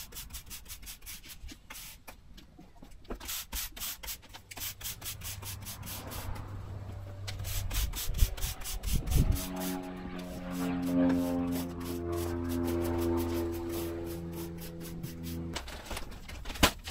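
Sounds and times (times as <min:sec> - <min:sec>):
broom sweeping sand: 0:03.2 - 0:06.6, 0:07.4 - 0:15.6.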